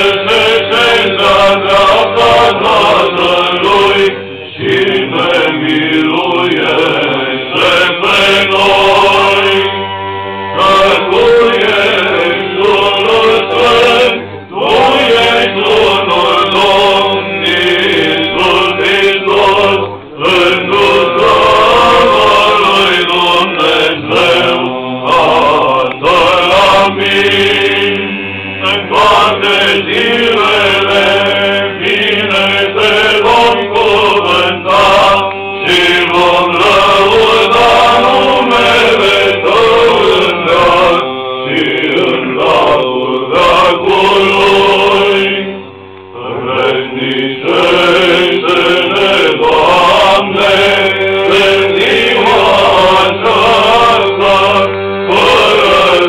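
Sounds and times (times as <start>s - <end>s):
men chanting: 0.0s - 56.0s.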